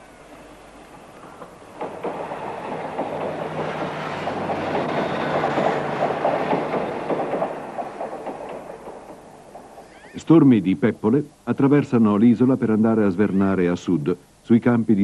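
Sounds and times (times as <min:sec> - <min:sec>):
train wheels clattering on rails: 0:00.9 - 0:09.8.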